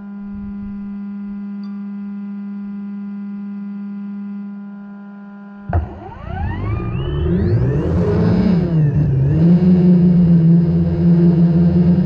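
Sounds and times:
drone whine rising in pitch: 5.6s - 12.0s
drone propellers buzzing: 5.7s - 12.0s.

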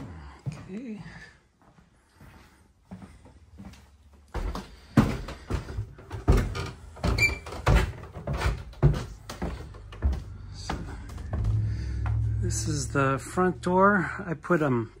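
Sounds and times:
footsteps on wooden stairs: 0.0s - 12.6s.

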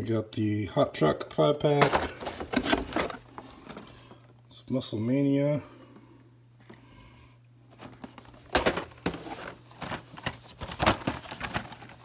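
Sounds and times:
plastic packs clacking: 1.6s - 4.3s, 7.7s - 12.0s.

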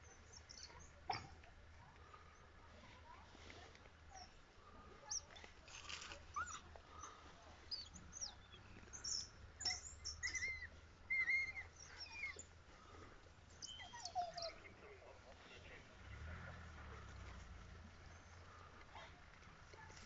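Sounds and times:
wild dogs twittering calls: 0.0s - 2.6s, 4.0s - 20.0s.

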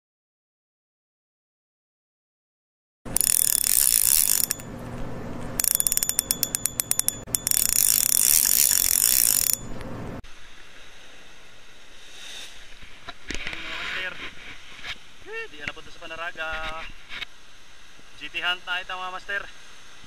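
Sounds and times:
rapid ratchet-like clicking: 3.1s - 4.7s, 5.6s - 9.8s.

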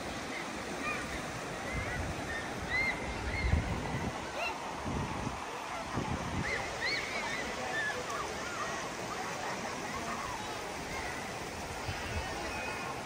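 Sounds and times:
river running over stones: 0.0s - 13.0s
distant people and children calling: 0.1s - 13.0s.

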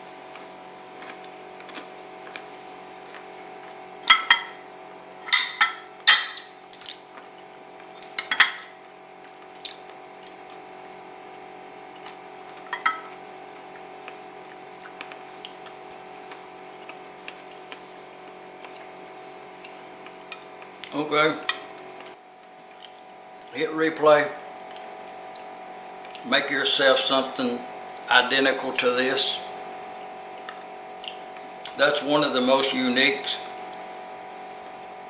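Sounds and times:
steady hum: 0.0s - 35.0s.

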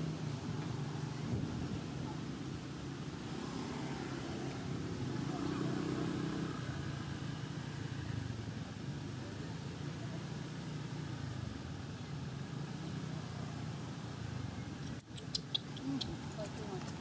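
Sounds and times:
distant traffic rumble: 0.0s - 17.0s.

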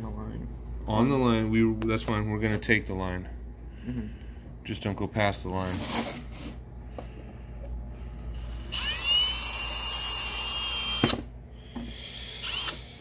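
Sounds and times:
high-speed power tool whining: 8.4s - 11.2s, 11.9s - 12.9s.

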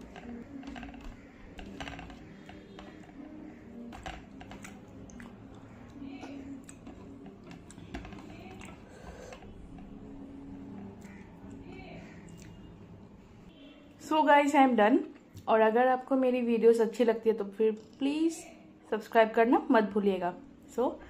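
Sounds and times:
chewing rice: 0.0s - 10.0s.

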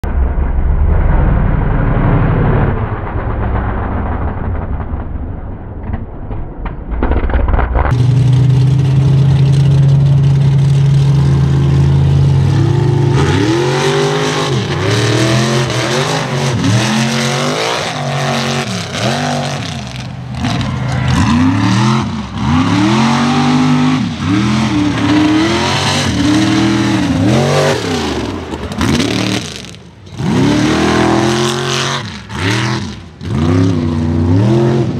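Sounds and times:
truck engine revving: 7.1s - 34.9s.

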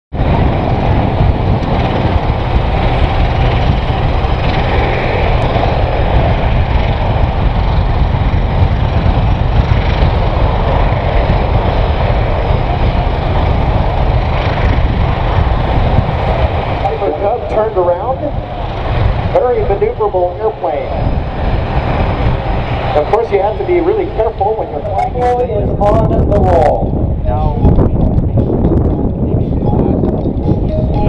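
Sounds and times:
aircraft engines rumbling: 0.1s - 31.0s.

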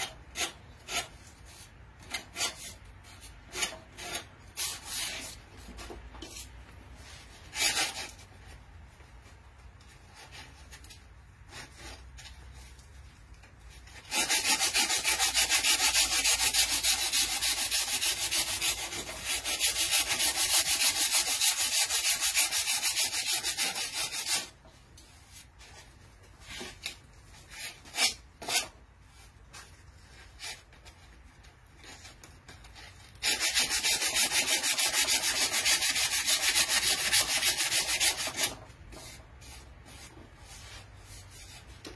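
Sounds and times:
hand sanding wooden board: 13.9s - 26.8s, 31.8s - 41.9s.

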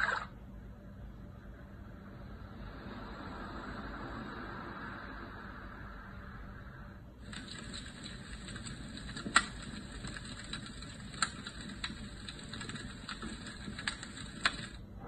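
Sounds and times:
white noise hiss: 0.0s - 15.0s
sharp crackles: 7.2s - 14.8s.

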